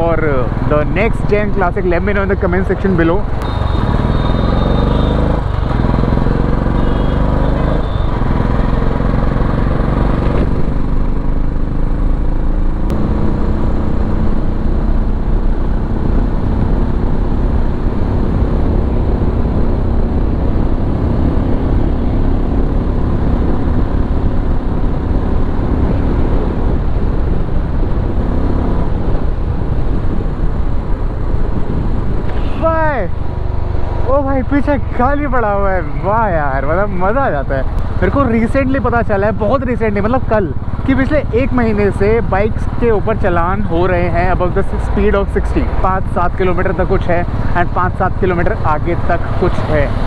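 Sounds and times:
motorcycle engine accelerating: 0:03.2 - 0:47.5
wind rush on microphone: 0:09.7 - 0:35.3.

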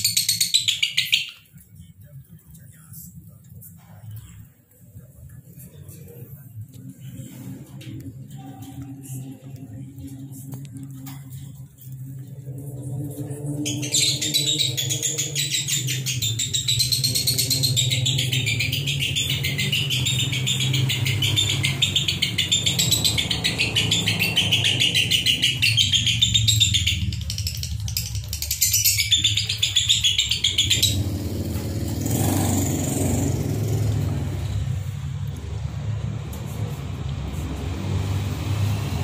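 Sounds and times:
lovebirds twittering: 0:00.0 - 0:01.6, 0:12.2 - 0:34.8
steady low hum: 0:01.4 - 0:38.4.

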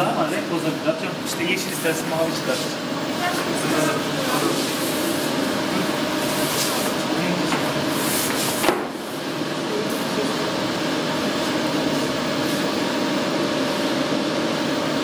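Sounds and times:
inkjet printer carriage humming: 0:00.0 - 0:15.0.

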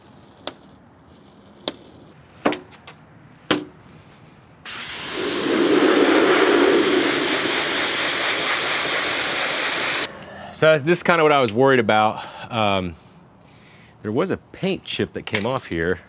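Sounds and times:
pressure washer spray hissing: 0:04.7 - 0:10.1.

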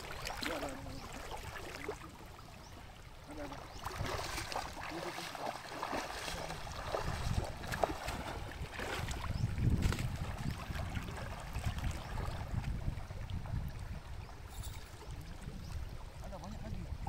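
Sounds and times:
feet splashing through water: 0:00.0 - 0:02.6, 0:03.2 - 0:13.6
stream rushing: 0:00.0 - 0:16.3
wind rumbling on microphone: 0:03.4 - 0:17.0.

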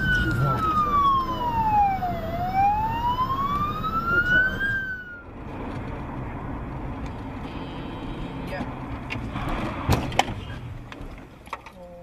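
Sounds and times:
ambulance siren wailing: 0:00.0 - 0:05.4
car road noise: 0:00.0 - 0:12.0.

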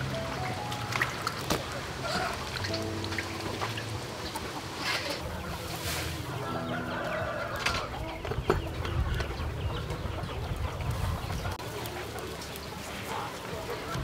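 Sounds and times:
chickens clucking: 0:00.0 - 0:14.0.

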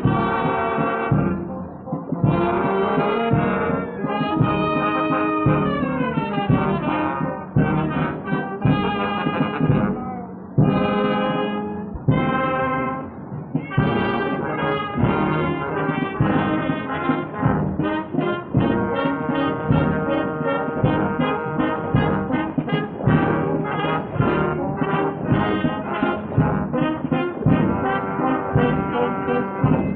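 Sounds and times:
brass band playing: 0:00.0 - 0:29.9.

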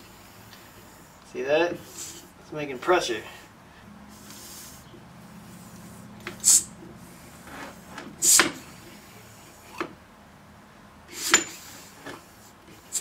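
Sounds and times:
steam engine cylinder air puffs: 0:01.8 - 0:02.4, 0:04.1 - 0:09.8, 0:11.1 - 0:13.0.

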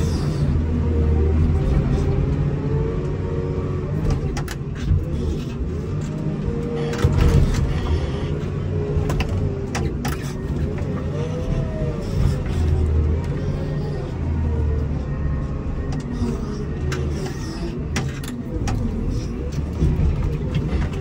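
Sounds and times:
diesel engine under load: 0:00.0 - 0:21.0
engine whine: 0:00.0 - 0:21.0.

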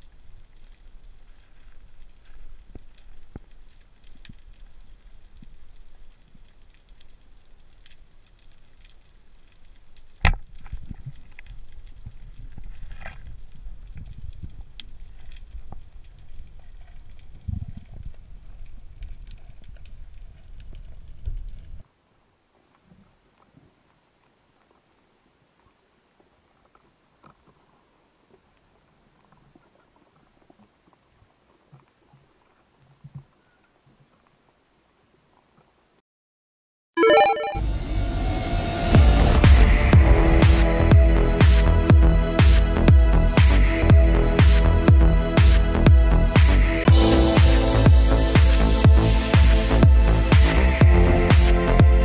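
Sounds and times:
underwater clicks and crackles: 0:00.0 - 0:21.8, 0:22.6 - 0:34.7
low knocking and rumbling: 0:37.6 - 0:51.1
soft low thumps: 0:38.9 - 0:52.0.

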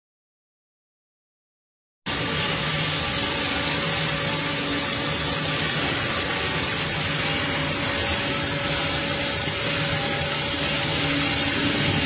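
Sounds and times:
metal-cutting machine running: 0:02.1 - 0:12.0.

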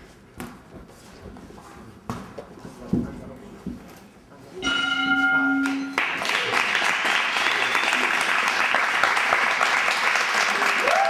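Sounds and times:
steady pitched tone: 0:04.6 - 0:06.0
group applause: 0:05.6 - 0:11.0.

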